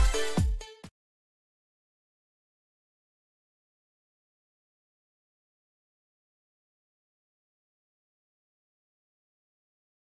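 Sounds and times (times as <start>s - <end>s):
electronic dance music: 0.0s - 0.9s.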